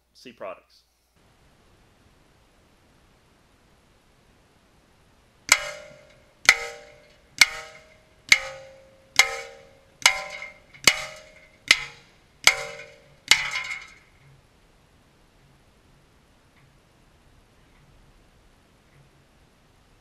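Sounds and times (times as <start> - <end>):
bullets clanging on steel plate: 5.5 - 14.2.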